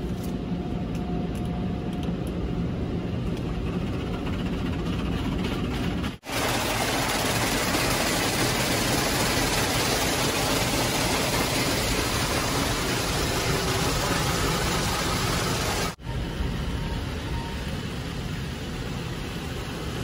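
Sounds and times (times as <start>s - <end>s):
car wash water spray: 4.5s - 16.0s, 17.6s - 20.0s.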